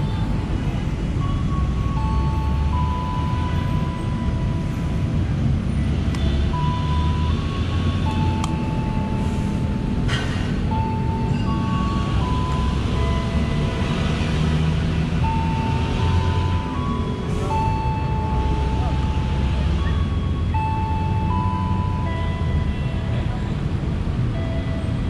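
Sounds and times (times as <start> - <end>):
low train rumble: 0.0 - 25.0.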